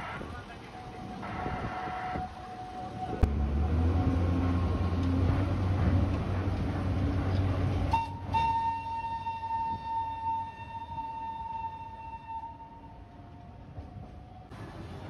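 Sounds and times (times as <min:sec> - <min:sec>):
low vehicle rumble: 0:00.0 - 0:09.9.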